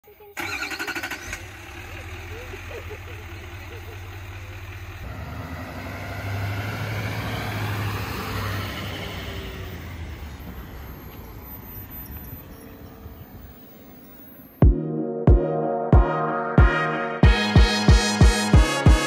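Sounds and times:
road noise: 0.0 - 14.6
truck engine running: 0.4 - 14.6.

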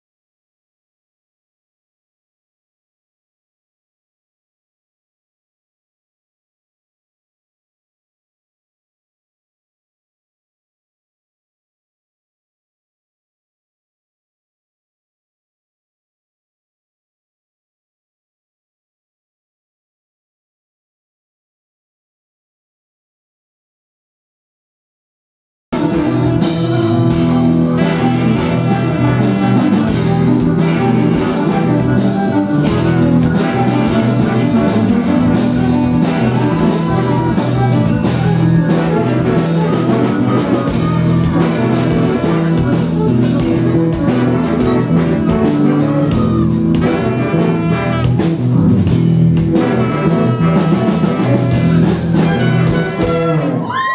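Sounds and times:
bass guitar: 25.7 - 53.9
drums: 25.7 - 53.9
electric guitar: 25.8 - 53.9
trumpet: 25.8 - 53.9.

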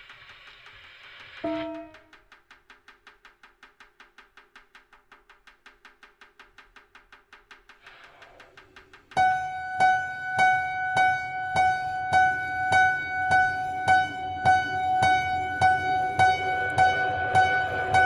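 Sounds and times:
loud repeated struck note: 1.4 - 2.2, 9.2 - 18.0
steady ringing pitch: 1.4 - 2.2, 9.2 - 18.0.

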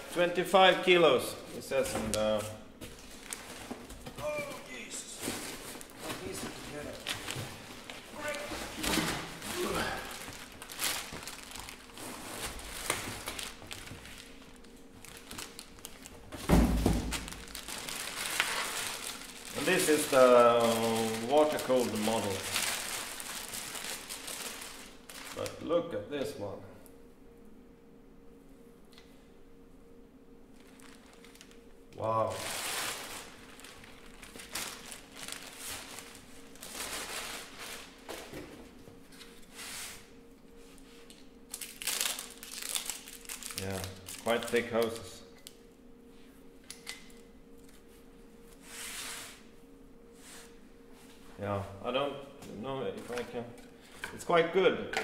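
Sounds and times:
plastic wrapping crinkling: 2.9 - 16.4, 17.0 - 25.7, 30.5 - 38.2, 41.0 - 45.6.

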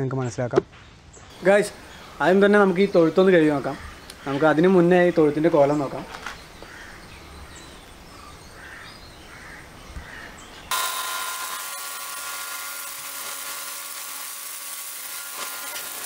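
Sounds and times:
faint bird calls: 1.2 - 10.7
pressure washer motor whine: 10.7 - 16.0.

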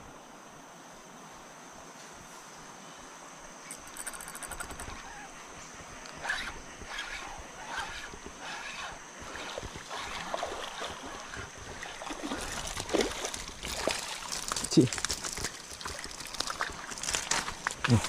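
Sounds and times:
water splashing and sloshing: 4.1 - 18.0.

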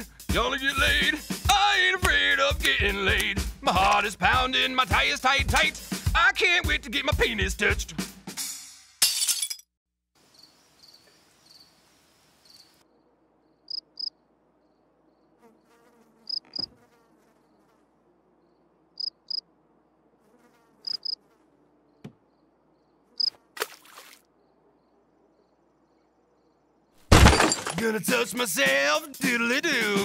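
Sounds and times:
cricket chirps: 10.2 - 16.7, 18.4 - 19.4, 20.8 - 27.0.

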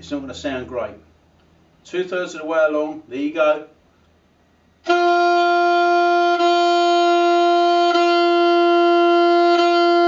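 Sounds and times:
saxophone mouthpiece note: 4.8 - 10.0.

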